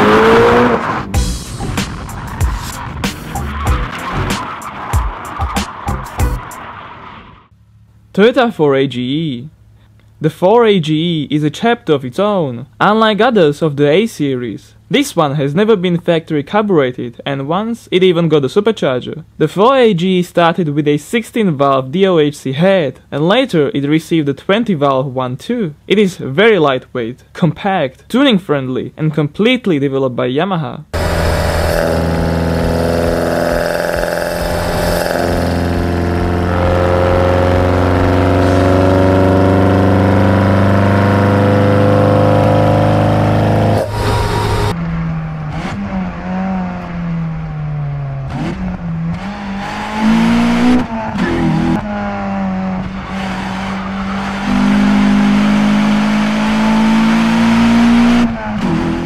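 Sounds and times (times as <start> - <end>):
engine revving through intakes: 0.0 - 7.1, 31.0 - 59.0
car engine shifting through gears: 0.0 - 7.6, 31.0 - 59.0.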